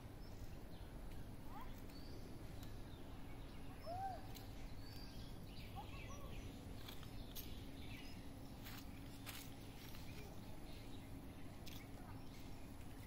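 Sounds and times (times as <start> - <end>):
low background noise: 0.0 - 13.0
faint bird chirps: 0.2 - 8.8.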